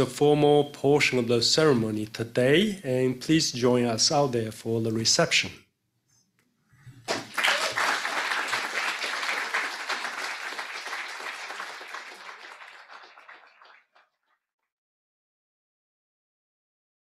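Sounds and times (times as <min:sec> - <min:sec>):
audience applauding: 0:07.1 - 0:14.2.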